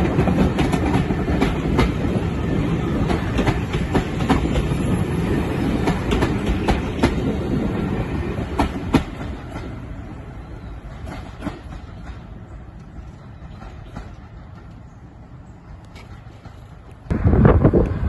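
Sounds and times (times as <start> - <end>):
train wheels clickety-clack: 0.0 - 7.7, 8.4 - 9.8, 10.7 - 14.9.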